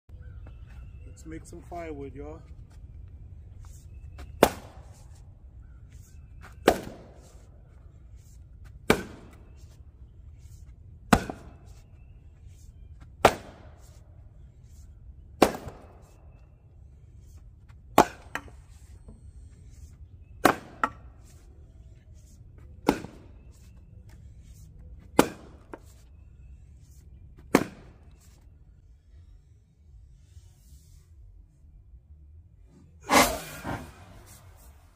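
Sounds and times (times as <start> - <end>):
axe striking firewood: 4.4 - 5.0, 6.6 - 7.3, 8.8 - 9.4, 11.1 - 11.7, 13.2 - 14.0, 15.4 - 16.2, 17.9 - 18.6, 20.4 - 21.1, 22.8 - 23.3, 25.2 - 25.8, 27.5 - 28.0, 33.1 - 33.9.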